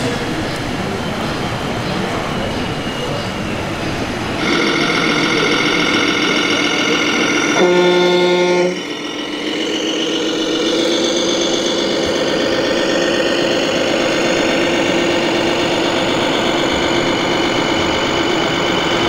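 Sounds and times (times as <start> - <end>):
steady engine drone: 3.2 - 19.0
toy truck horn: 4.4 - 9.0.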